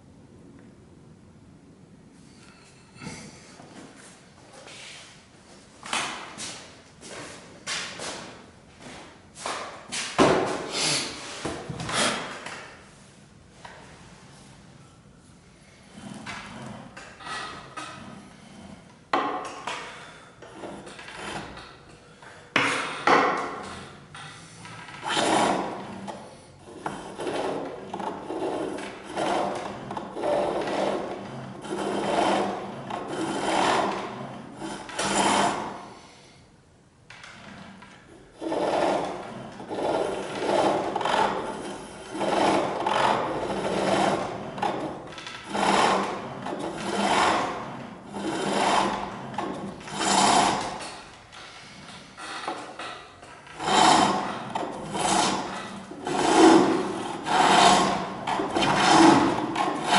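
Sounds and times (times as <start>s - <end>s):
chisel shaving spinning wood: 20.4s - 21.8s, 24.8s - 35.8s, 38.4s - 51.1s, 52.5s - 59.9s.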